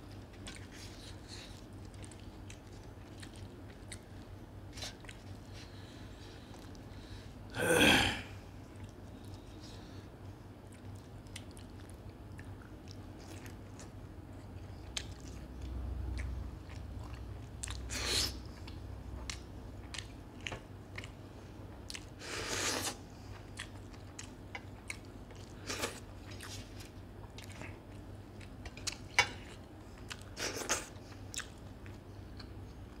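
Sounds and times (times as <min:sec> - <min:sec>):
faint low hum: 0:00.0 - 0:33.0
wet chewing and lip smacks: 0:00.1 - 0:05.6, 0:10.6 - 0:21.2, 0:23.4 - 0:32.5.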